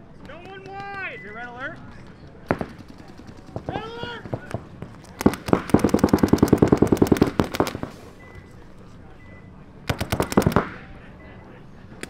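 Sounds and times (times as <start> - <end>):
paintball markers firing rapidly: 2.5 - 8.1, 9.9 - 10.8.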